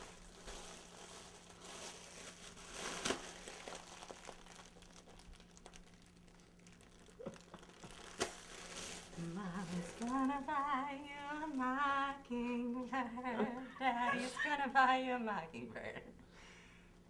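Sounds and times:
foil balloon crinkling: 0.0 - 12.6
person breathing in: 16.3 - 17.0.

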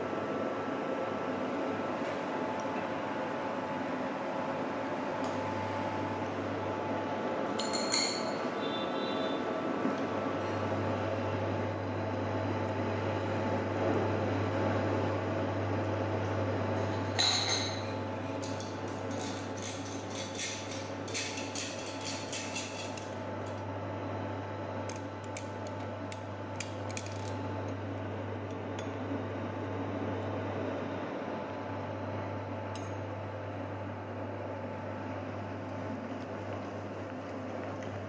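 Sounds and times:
dishes and cutlery clinking: 7.6 - 8.5, 17.2 - 23.1.

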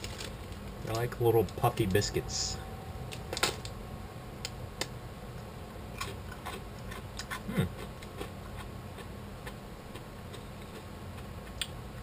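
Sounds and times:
crunchy biscuits being chewed: 6.0 - 11.7.

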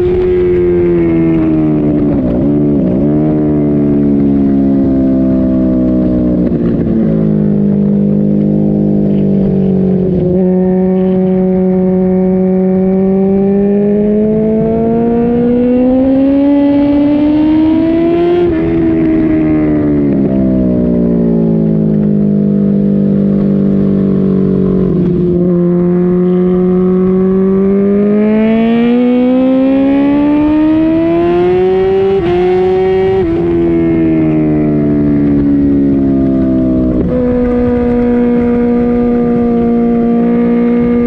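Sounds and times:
racing motorcycle engine: 0.0 - 41.0.

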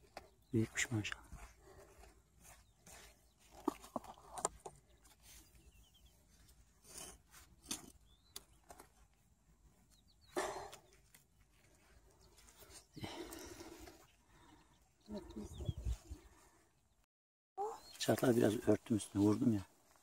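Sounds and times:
hand hoe scraping stony soil: 1.0 - 9.3.

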